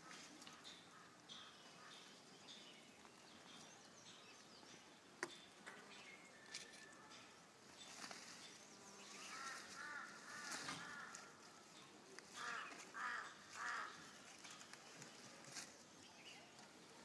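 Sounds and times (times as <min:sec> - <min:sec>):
distant birds chirping: 0:00.0 - 0:15.2
crow cawing: 0:09.3 - 0:11.4, 0:12.3 - 0:14.1.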